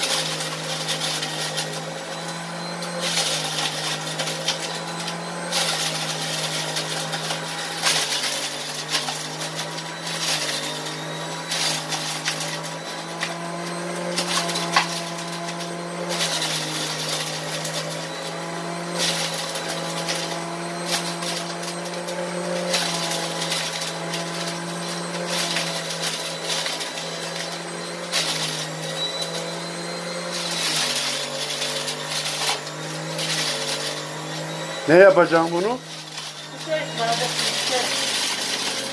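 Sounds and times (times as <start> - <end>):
grapes crackling as shredded: 0.0 - 38.9
juicer motor hum: 0.0 - 38.9.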